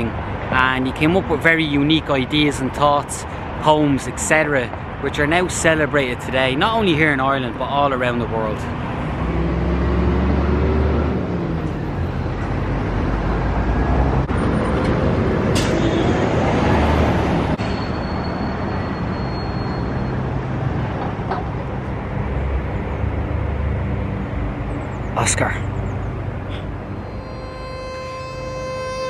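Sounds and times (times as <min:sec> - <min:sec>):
street traffic: 0:00.0 - 0:29.0
bus engine rumble: 0:07.7 - 0:28.7
vehicle accelerating: 0:08.7 - 0:15.5.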